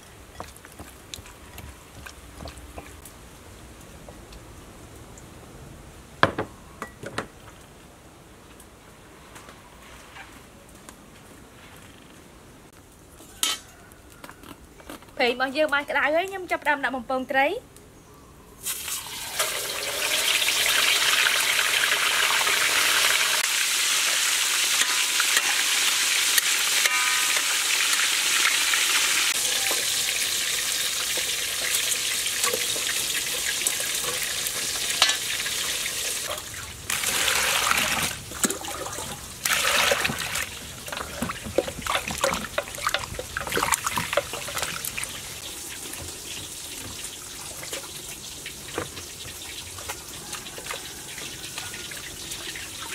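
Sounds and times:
fish sizzling in hot oil: 18.6 - 38.1, 39.2 - 52.9
water splashing in a basin: 36.2 - 52.9.

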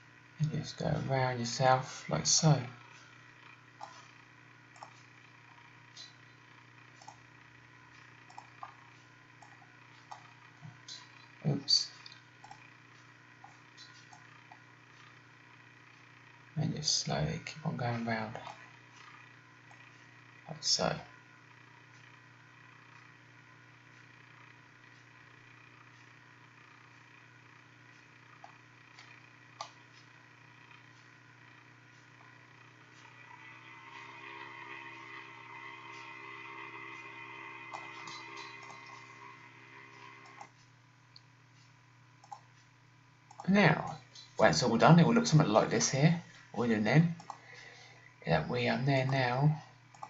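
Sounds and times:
low steady hum: 0.0 - 50.0
computer mouse clicks: 3.8 - 5.1, 6.9 - 7.2, 8.0 - 11.3, 12.0 - 12.7, 13.4 - 15.1, 28.4 - 30.1, 37.7 - 39.3, 40.0 - 41.3, 42.2 - 42.7, 43.3 - 44.3, 47.2 - 47.4
faint computer mouse clicks: 7.0 - 7.2, 42.2 - 42.7.

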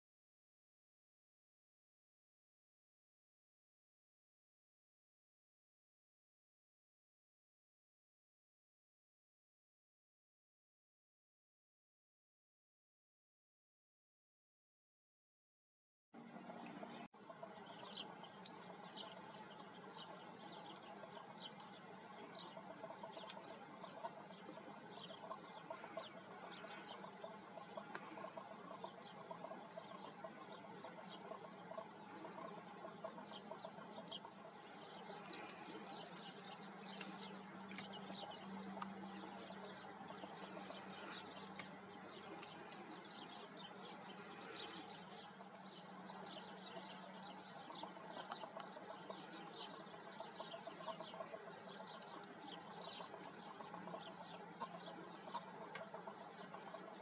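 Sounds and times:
low steady hum: 16.2 - 57.0
small birds chirping: 16.4 - 57.0.

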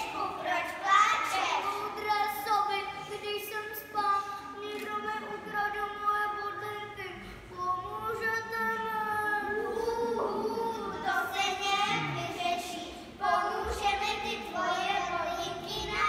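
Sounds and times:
children singing: 8.1 - 16.0.

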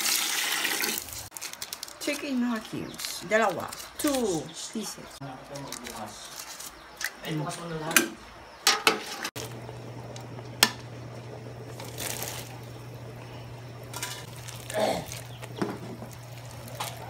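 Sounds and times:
metal pot and utensils clinking: 7.9 - 9.3
steady low hum: 9.4 - 17.0.

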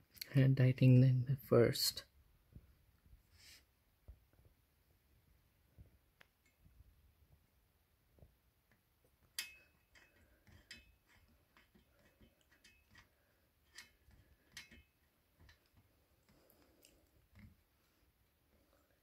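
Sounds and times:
metallic clicks of screws tightening: 13.7 - 15.7.

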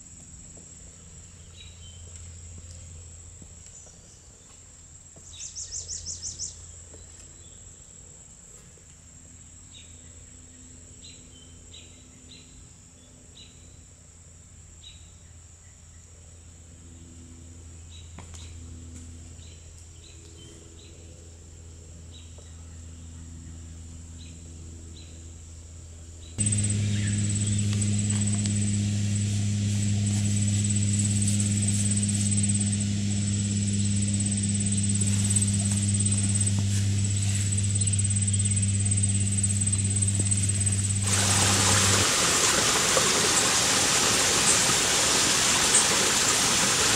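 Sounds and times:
insects droning: 0.0 - 15.0, 22.9 - 46.9
low steady hum: 0.0 - 46.9
bird trill: 26.4 - 28.8
birds chirping: 26.4 - 46.9.

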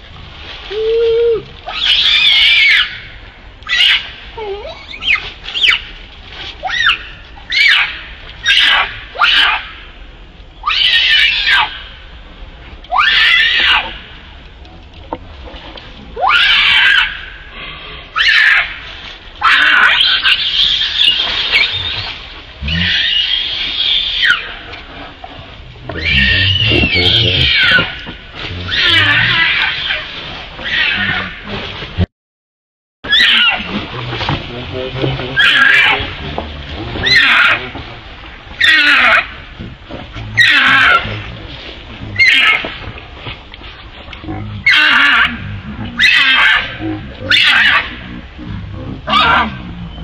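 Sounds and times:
macaques screaming: 1.7 - 3.0, 6.7 - 9.6, 13.0 - 13.9, 18.2 - 18.8, 19.4 - 24.6, 26.0 - 28.0, 28.6 - 31.4, 33.1 - 33.8, 35.4 - 36.2, 37.0 - 37.7, 38.6 - 39.3, 40.4 - 41.1, 42.2 - 42.6, 44.6 - 45.4, 46.0 - 48.0, 49.0 - 49.6.

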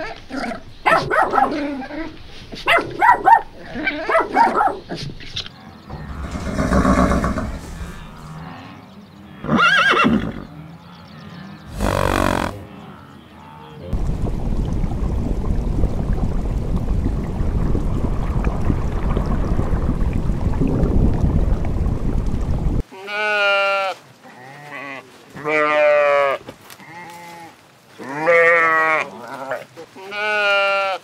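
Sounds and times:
dog barks: 0.8 - 5.1
steady rushing noise: 5.9 - 8.4
horses whinnying: 5.9 - 8.7, 9.4 - 10.5, 11.7 - 13.6.

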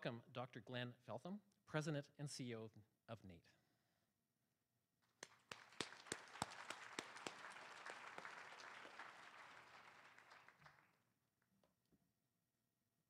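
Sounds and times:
sharp claps: 5.0 - 11.0
audience applauding: 5.2 - 11.0.

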